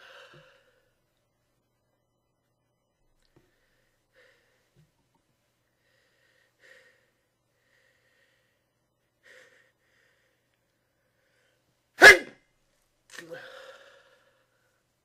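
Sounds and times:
person sneezing: 12.0 - 12.4.

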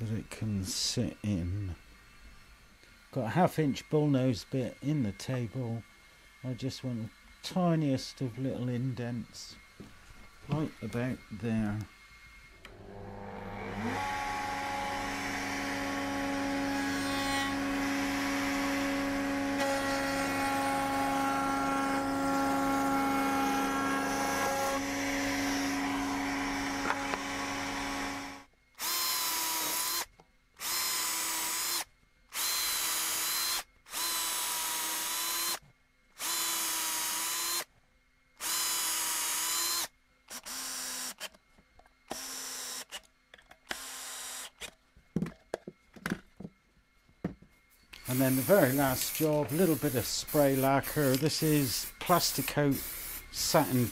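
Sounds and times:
router cutting wood: 12.6 - 31.8, 32.4 - 35.6, 36.2 - 37.7, 48.0 - 53.9
cordless drill bursts: 12.6 - 35.6, 36.2 - 37.7, 38.4 - 41.3, 42.1 - 43.0, 43.7 - 44.7, 48.0 - 53.9.

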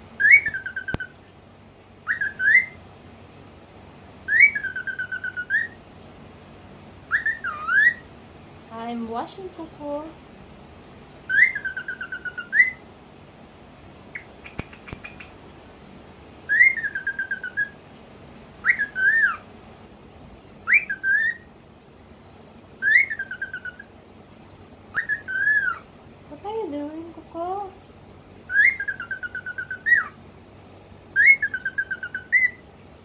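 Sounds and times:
cockatiel whistling: 0.2 - 1.1, 2.0 - 2.8, 4.3 - 5.8, 7.1 - 8.0, 11.3 - 12.8, 16.5 - 17.8, 18.6 - 19.4, 20.6 - 21.4, 22.8 - 23.8, 24.9 - 25.8, 28.5 - 30.2, 31.2 - 32.6
faint clicks: 14.2 - 15.4.

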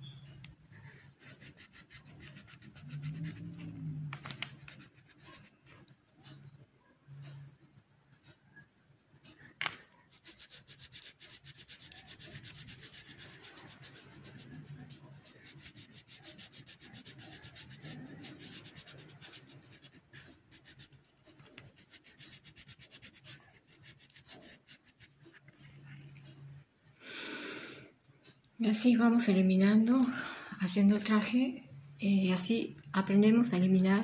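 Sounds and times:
colored pencil rubbing on paper: 0.7 - 5.9, 10.0 - 26.4.

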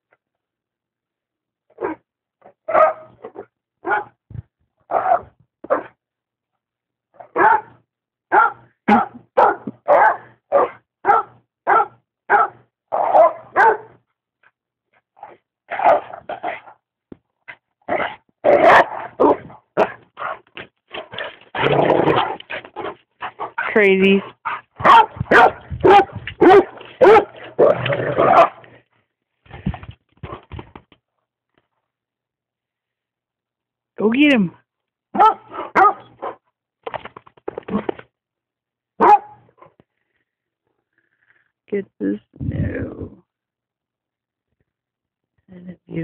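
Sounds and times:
dog barking: 1.8 - 2.0, 2.7 - 4.2, 4.9 - 6.0, 7.2 - 14.0, 15.8 - 16.1, 18.0 - 20.4, 24.8 - 28.6, 35.1 - 36.4, 39.0 - 39.4.

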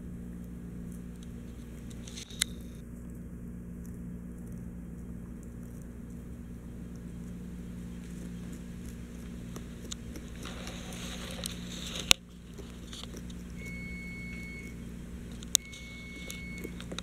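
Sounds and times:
steady low hum: 0.0 - 17.0
dog chewing and crunching: 0.2 - 17.0
sharp clicks: 8.2 - 17.0.

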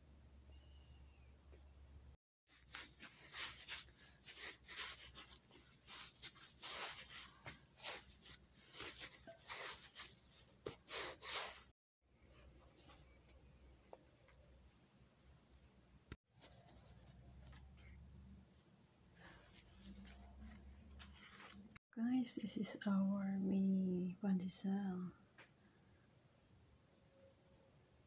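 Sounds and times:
plastic sheet crinkling: 2.5 - 11.7.

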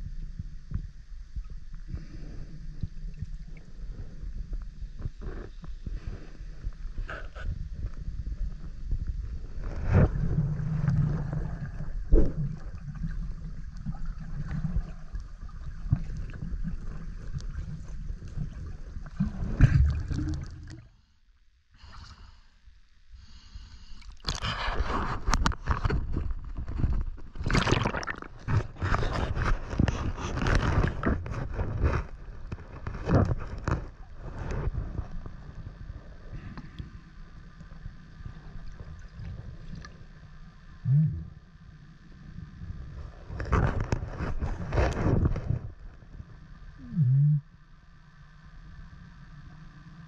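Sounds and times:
water splashing and sloshing: 7.0 - 21.0, 23.9 - 36.9, 37.6 - 40.2
swim strokes churning: 9.6 - 20.9, 27.4 - 29.4
water gurgling and rushing: 9.6 - 20.9, 27.3 - 29.8.

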